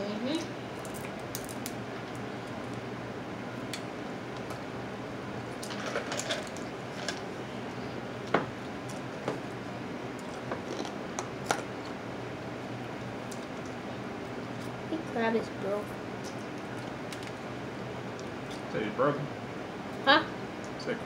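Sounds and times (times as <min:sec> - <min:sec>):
steady low hum: 0:00.0 - 0:21.0
crab shells cracking: 0:00.8 - 0:02.8.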